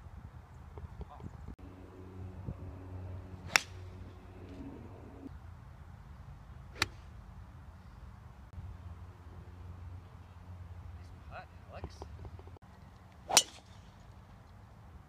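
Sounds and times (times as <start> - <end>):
low background rumble: 1.0 - 5.4
golf club striking ball: 3.4 - 3.9, 13.3 - 13.8.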